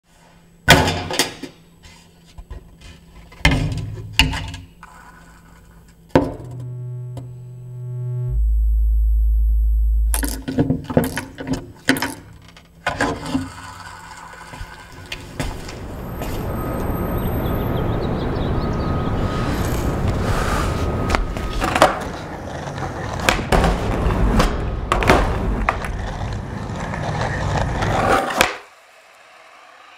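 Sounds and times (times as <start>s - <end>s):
deep bass drone: 6.4s - 10.4s
steady electronic tone: 6.4s - 10.4s.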